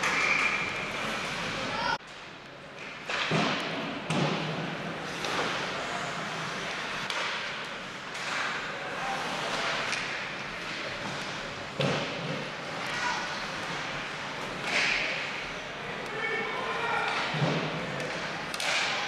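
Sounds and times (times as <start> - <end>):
skate blades scraping ice: 0.0 - 1.8, 8.2 - 15.1
sticks and puck clacking: 0.0 - 19.0.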